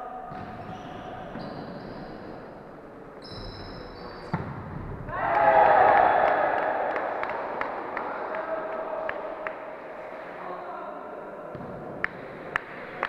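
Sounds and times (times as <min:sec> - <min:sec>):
volleyball smack: 0:04.3 - 0:04.9
players shouting: 0:05.1 - 0:09.5.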